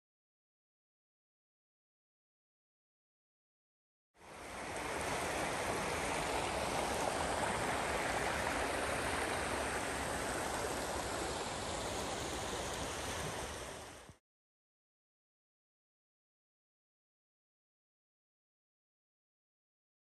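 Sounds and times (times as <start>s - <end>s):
creek rushing over rocks: 4.2s - 14.2s.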